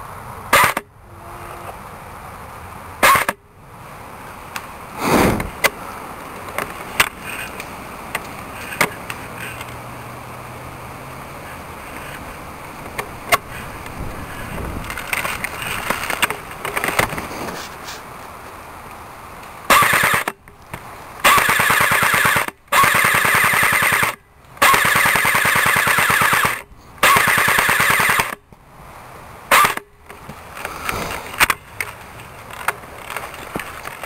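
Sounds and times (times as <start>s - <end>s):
airsoft rifle shot: 3.0s - 3.4s, 5.0s - 5.6s, 19.7s - 20.3s, 21.2s - 28.4s, 29.5s - 29.9s.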